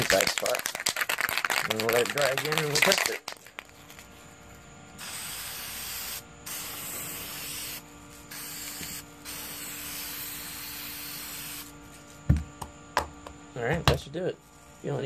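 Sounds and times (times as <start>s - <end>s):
spray paint can hissing: 5.0s - 12.1s.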